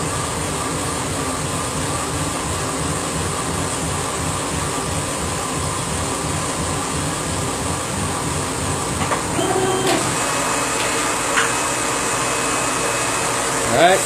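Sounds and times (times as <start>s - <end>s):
motor whine: 9.1s - 14.0s
laser engraver motor pulsing: 9.3s - 14.0s.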